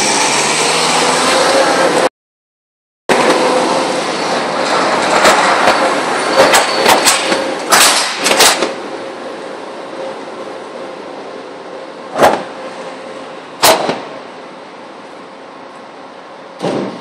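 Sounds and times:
sharp knocks and clatters: 4.6 - 8.8.

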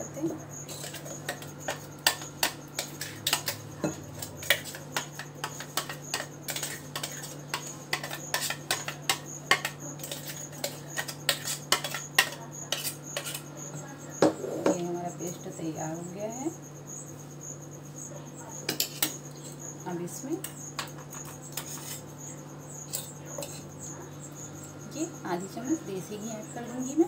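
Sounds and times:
metal spoon clinking and scraping: 0.6 - 13.5, 18.7 - 19.6, 20.4 - 22.2, 22.8 - 23.8.

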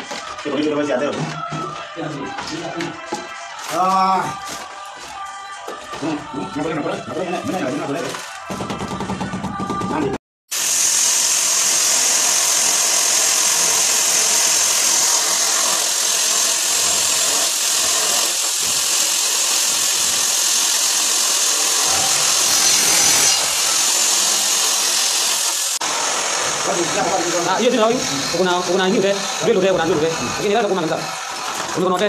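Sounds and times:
electric drill grinding tile: 10.5 - 32.0.

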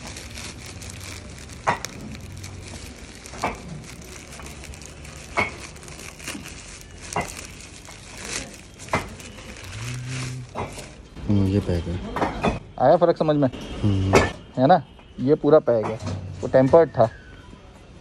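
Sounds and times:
plastic wrapping tearing and crinkling: 0.0 - 11.2.

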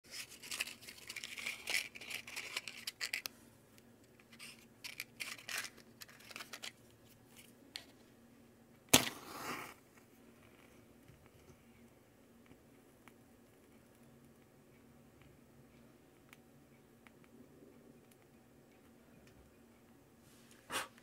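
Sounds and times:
matchbox clicks and rustles: 0.1 - 3.3, 4.1 - 7.5
match striking and flaring: 8.9 - 9.8.

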